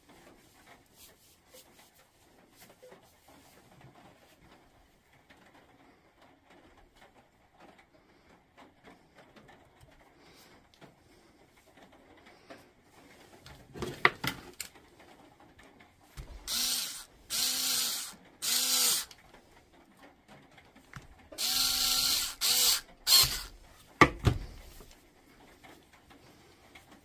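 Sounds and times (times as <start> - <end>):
power tool motor bursts: 16.4 - 19.1, 21.4 - 23.5
tool handling knocks: 24.0 - 24.9.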